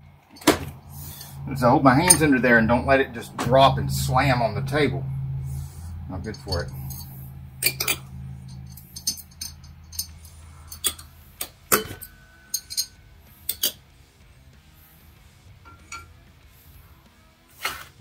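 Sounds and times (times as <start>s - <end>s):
metal parts clinking on tray: 6.3s - 13.8s, 15.7s - 16.1s.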